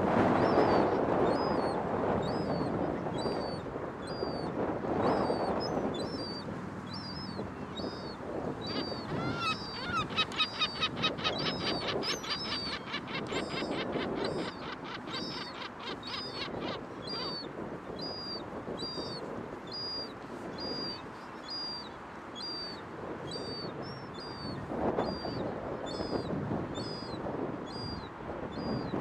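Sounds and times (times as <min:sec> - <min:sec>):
young gull begging calls: 0:08.7 - 0:17.5.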